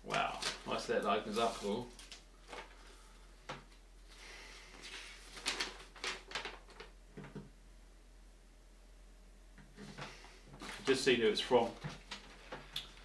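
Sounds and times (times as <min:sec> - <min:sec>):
paper rustling and crinkling: 0:00.0 - 0:02.9, 0:04.7 - 0:07.4, 0:09.8 - 0:13.0.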